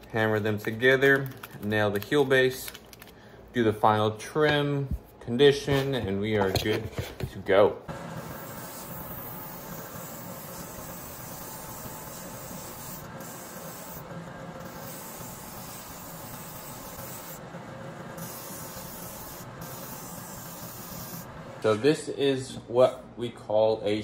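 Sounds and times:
machine running noise: 0:07.9 - 0:21.8
sole sanding hissing rasp: 0:08.2 - 0:17.4, 0:18.1 - 0:21.3.

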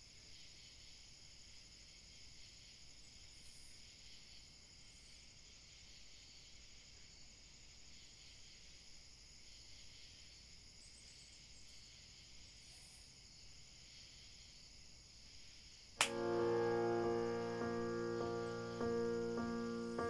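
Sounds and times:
faint high hiss: 0:16.0 - 0:20.0.

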